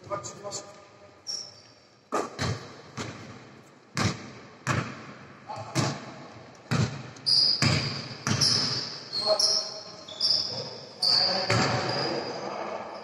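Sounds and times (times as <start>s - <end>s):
basketball bouncing on hardwood floor: 2.3s - 3.3s, 4.0s - 5.0s, 6.7s - 7.0s, 7.6s - 8.8s
high squeak: 7.3s - 12.6s.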